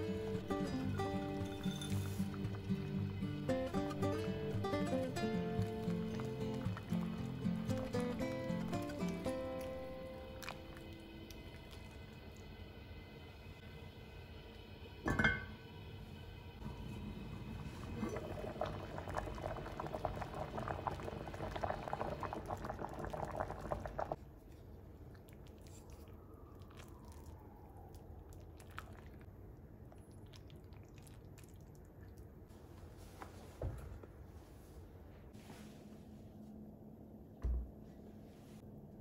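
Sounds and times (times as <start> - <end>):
pouring bubbling liquid: 2.5 - 12.6, 17.2 - 24.2, 26.6 - 29.3.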